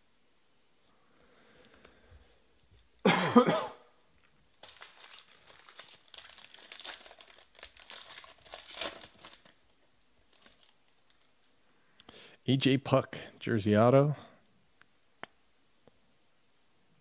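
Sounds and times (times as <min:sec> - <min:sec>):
person coughing: 0:03.0 - 0:03.9
foil wrapper being torn open: 0:04.6 - 0:09.7, 0:10.3 - 0:11.2.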